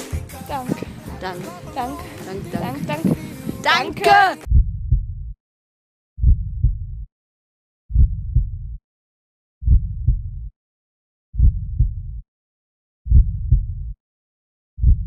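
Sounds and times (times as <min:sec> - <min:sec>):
heartbeat thumps: 0:00.4 - 0:05.4, 0:06.2 - 0:07.1, 0:07.9 - 0:08.8, 0:09.6 - 0:10.5, 0:11.4 - 0:12.2, 0:13.1 - 0:14.0, 0:14.8 - 0:15.0.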